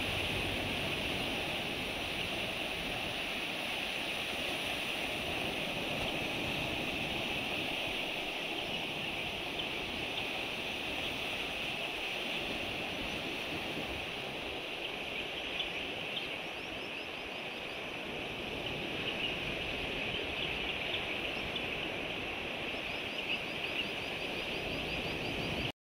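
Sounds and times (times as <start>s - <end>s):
sea surf on rocky shore: 0.0s - 25.7s.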